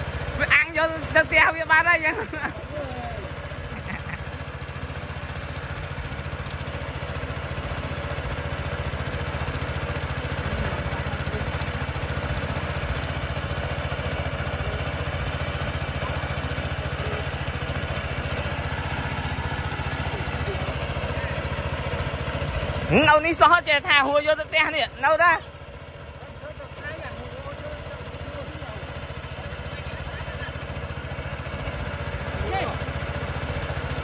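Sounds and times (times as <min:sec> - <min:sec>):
small engine running: 0:00.0 - 0:34.0.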